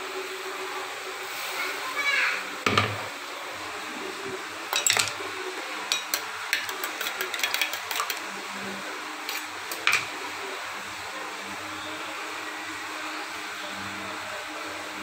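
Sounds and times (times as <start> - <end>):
kitchen utensils clicking: 4.7 - 5.2, 5.9 - 8.3, 9.3 - 10.1.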